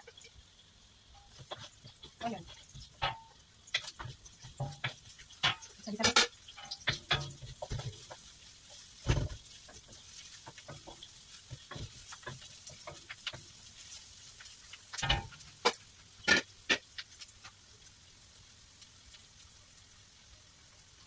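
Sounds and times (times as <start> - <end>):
faint frying sizzle: 0.0 - 21.0
wooden spatula scraping a wok: 1.2 - 17.6
spatula knocks: 2.8 - 8.2.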